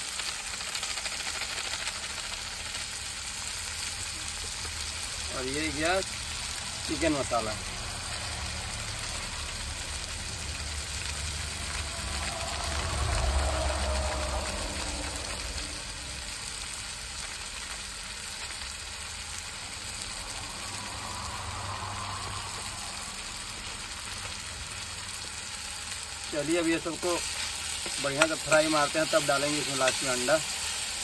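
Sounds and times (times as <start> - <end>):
masala sizzling in oil: 0.0 - 31.0
low rumble: 7.5 - 17.2.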